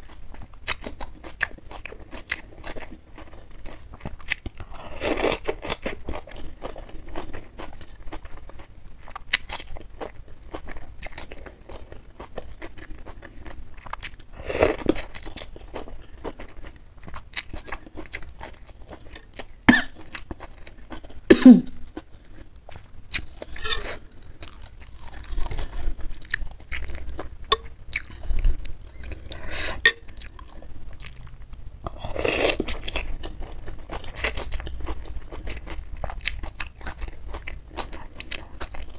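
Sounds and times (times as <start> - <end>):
wet chewing and mouth clicks: 21.9 - 38.9.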